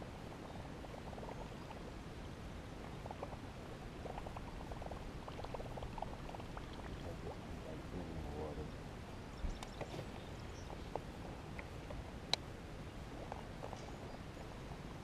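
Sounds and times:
water gurgling and splashing: 0:00.0 - 0:02.0, 0:02.6 - 0:08.7, 0:13.0 - 0:15.0
patter of little ticks: 0:02.8 - 0:07.2, 0:09.4 - 0:12.5, 0:13.1 - 0:14.6.

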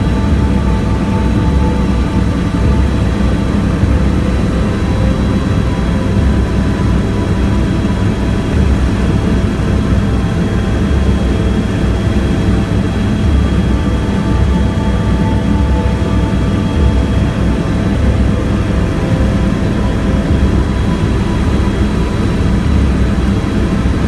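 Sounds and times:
faint high whine: 0:00.0 - 0:24.0
helicopter rotor and engine rumble: 0:00.0 - 0:24.0.

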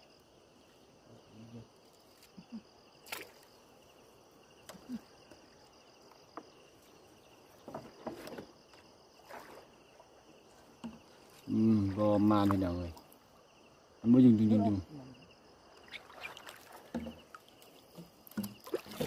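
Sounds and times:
insects chirping: 0:00.0 - 0:19.0
water splashes and drips: 0:03.0 - 0:03.8, 0:07.7 - 0:13.4, 0:15.7 - 0:19.0
net pulled from water: 0:15.9 - 0:17.4.

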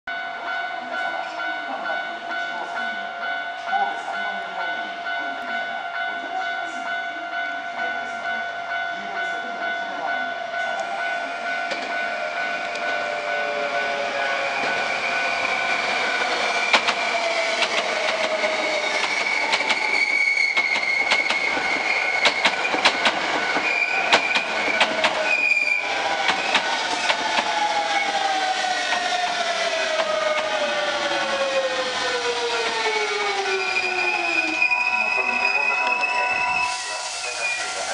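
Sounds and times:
train wheels clicking over rail joints: 0:14.4 - 0:33.4.

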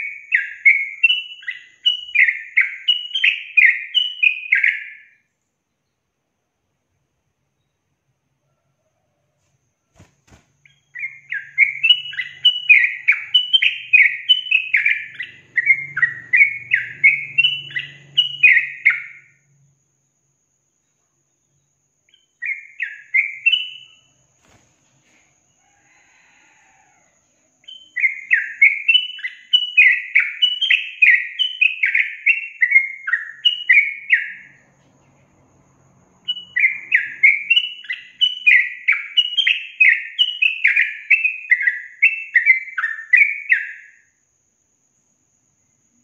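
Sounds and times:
bulbul singing whistled notes: 0:00.0 - 0:05.2, 0:10.0 - 0:19.4, 0:21.5 - 0:24.1, 0:27.6 - 0:34.6, 0:36.3 - 0:44.0.

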